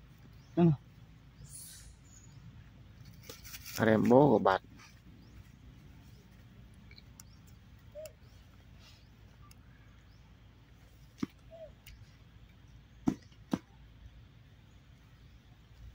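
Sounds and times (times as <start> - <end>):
faint chirps: 0.2 - 3.1, 4.8 - 12.8
clicks and crackles of dry stalk: 3.0 - 5.4, 6.1 - 8.6.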